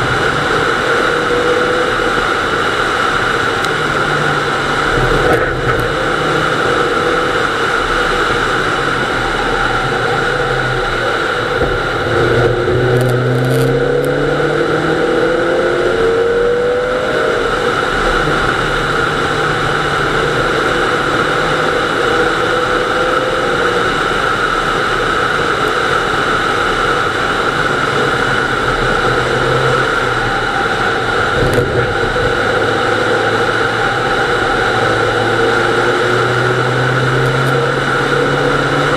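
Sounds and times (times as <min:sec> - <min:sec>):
car engine running hard: 0:00.0 - 0:38.9
road and tyre noise: 0:00.0 - 0:38.9.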